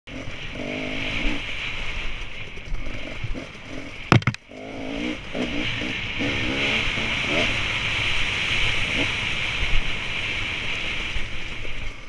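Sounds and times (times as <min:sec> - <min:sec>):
dirt bike engine revving: 0:00.1 - 0:09.6
loud knocks: 0:04.1 - 0:04.4.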